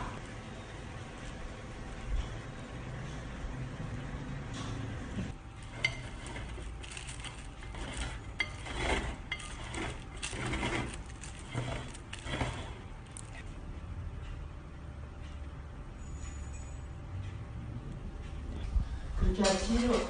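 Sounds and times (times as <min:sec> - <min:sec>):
frosting scraping on cake: 0:05.6 - 0:13.5.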